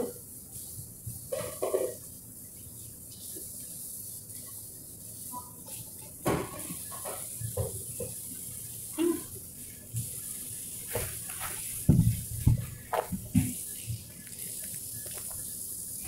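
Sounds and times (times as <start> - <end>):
steady hiss: 0.0 - 16.0
knocks and dish clatters: 1.3 - 2.0, 6.2 - 8.2.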